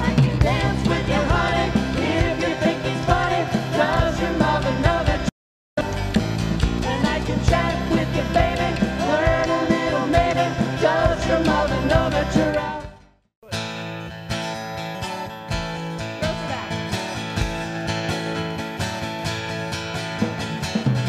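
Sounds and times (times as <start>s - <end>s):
women singing: 0.0s - 5.3s, 6.8s - 13.0s
live band playing: 0.0s - 21.0s
strummed acoustic guitar: 0.0s - 21.0s.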